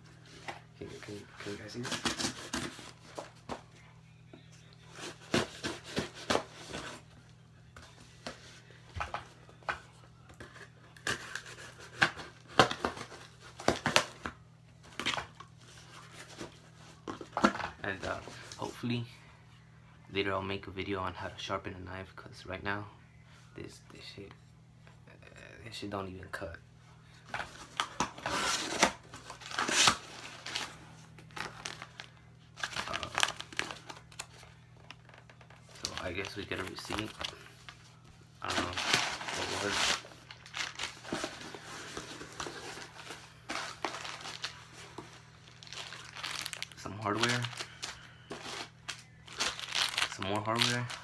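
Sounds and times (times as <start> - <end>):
paper packaging crinkling and tearing: 27.5 - 37.4, 38.4 - 51.0.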